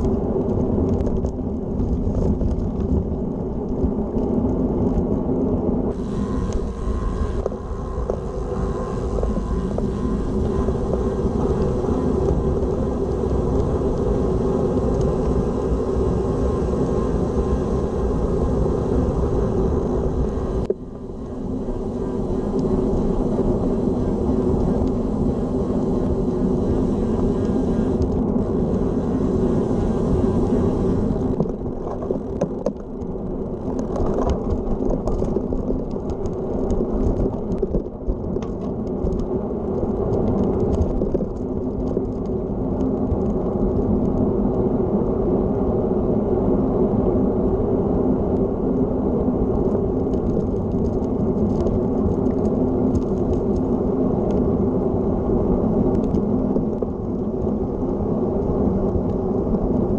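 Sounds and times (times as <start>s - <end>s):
bike tyres rolling on asphalt: 0.0s - 59.9s
wind buffeting microphone: 0.0s - 59.9s
high hiss: 6.0s - 31.4s.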